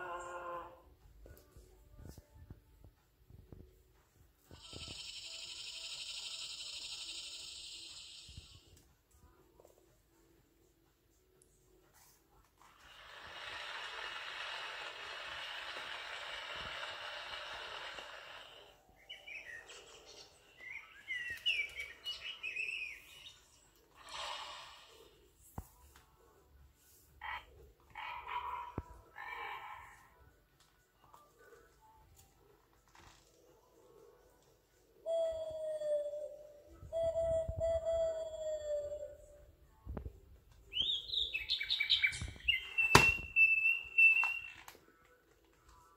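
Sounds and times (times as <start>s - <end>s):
recorded bird chirps from speaker: 4.5s - 8.7s, 19.0s - 24.2s, 40.7s - 44.7s.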